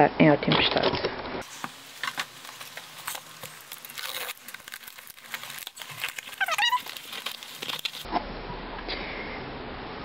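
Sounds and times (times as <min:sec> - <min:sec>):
cardboard parcel rustling: 0:01.4 - 0:08.1
box crackles and clicks: 0:01.6 - 0:08.1
wavering squeak: 0:06.3 - 0:07.0.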